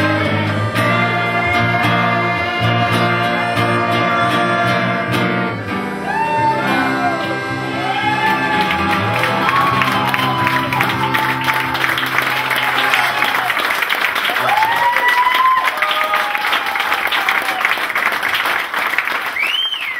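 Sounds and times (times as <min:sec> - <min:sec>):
live band playing slow song: 0:00.0 - 0:13.5
person singing long notes: 0:00.0 - 0:13.5.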